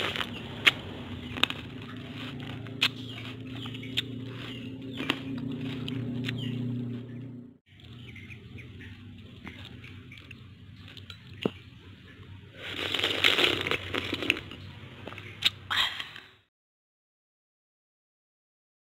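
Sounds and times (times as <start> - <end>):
steady low hum: 0.0 - 16.0
chickens clucking: 0.2 - 12.5.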